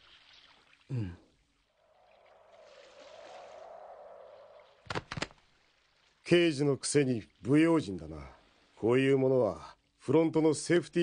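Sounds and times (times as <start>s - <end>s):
soft rushing water-like noise: 0.0s - 11.0s.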